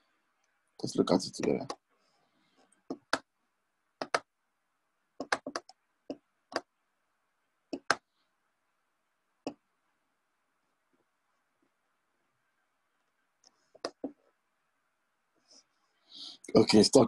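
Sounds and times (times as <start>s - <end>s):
computer mouse clicking: 4.0s - 4.3s, 5.2s - 6.7s, 7.7s - 8.0s.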